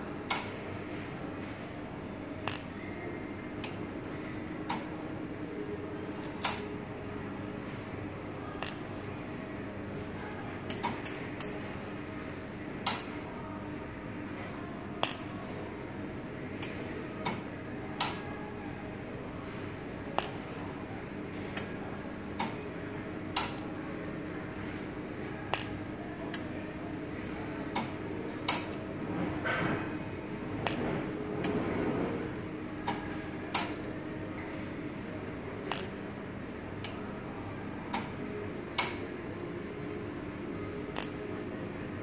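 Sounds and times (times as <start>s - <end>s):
steady electrical hum: 0.0s - 42.0s
sharp electrical clicks: 0.3s - 0.6s, 2.4s - 2.8s, 6.4s - 6.7s, 8.6s - 8.9s, 12.8s - 13.1s, 15.0s - 15.2s, 20.2s - 20.4s, 23.3s - 23.6s, 25.5s - 26.5s, 27.8s - 28.8s, 30.6s - 31.6s, 32.8s - 33.8s, 35.7s - 36.0s, 38.8s - 39.0s, 40.9s - 41.2s.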